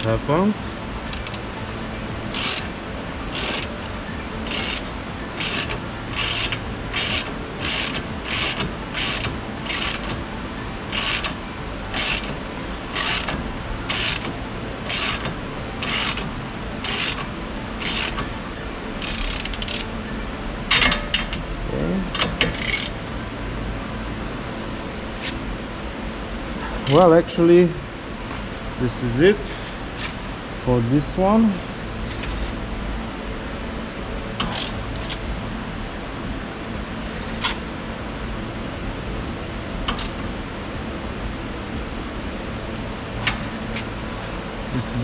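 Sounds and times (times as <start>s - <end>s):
ratchet wrench clicking: 1.0s - 1.5s, 2.2s - 3.8s, 4.4s - 10.2s, 10.9s - 18.3s, 19.0s - 19.9s, 22.1s - 23.0s, 34.4s - 35.2s, 39.9s - 40.2s.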